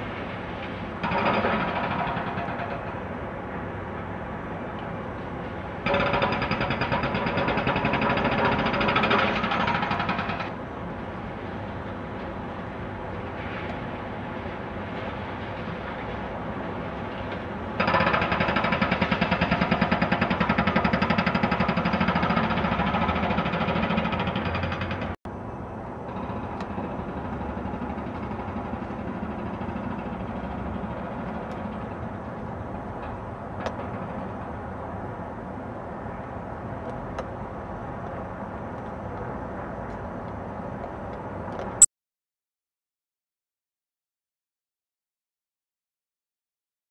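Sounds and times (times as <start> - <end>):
excavator engine and hydraulics whining: 0.0 - 41.9.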